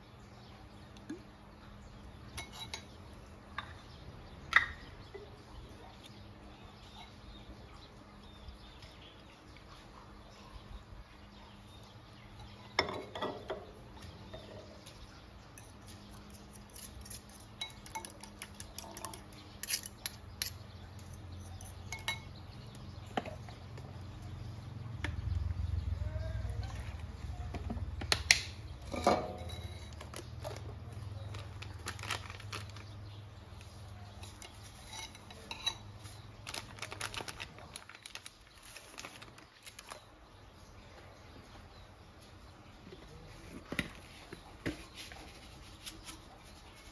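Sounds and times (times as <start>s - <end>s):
metal spoons clinking on ceramic bowl: 2.4s - 3.0s, 16.8s - 22.4s, 28.9s - 30.2s, 34.2s - 36.1s.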